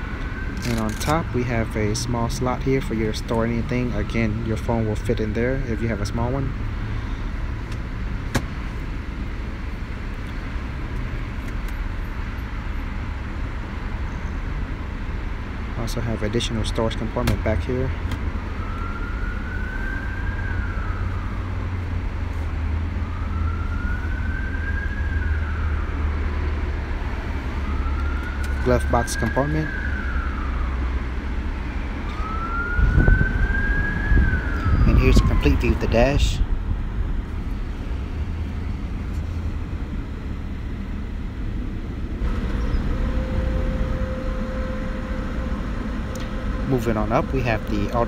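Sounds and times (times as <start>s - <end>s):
emergency siren wailing: 0.0s - 7.6s, 8.9s - 48.0s
steady low rumble: 30.0s - 48.0s.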